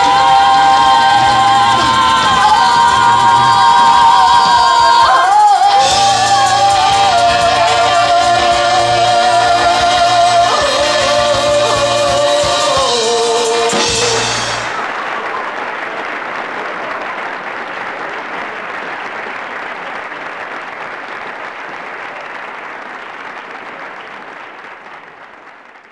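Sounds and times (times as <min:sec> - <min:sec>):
live band playing: 0:00.0 - 0:15.4
audience applause: 0:00.0 - 0:25.9
drum hit: 0:10.4 - 0:14.8.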